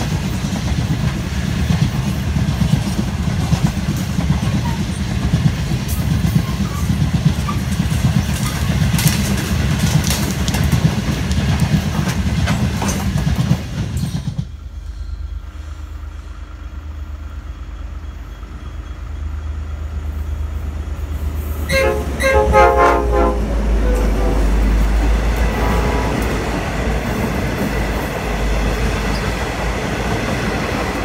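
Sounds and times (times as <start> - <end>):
diesel locomotive engine rumble: 0.0 - 31.0
freight wagons clattering over rail joints: 6.0 - 14.5
locomotive horn blasts: 21.6 - 26.6.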